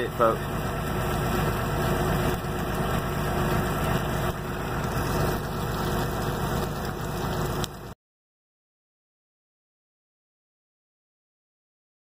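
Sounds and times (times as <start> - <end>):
steaks sizzling in grease: 0.4 - 7.9.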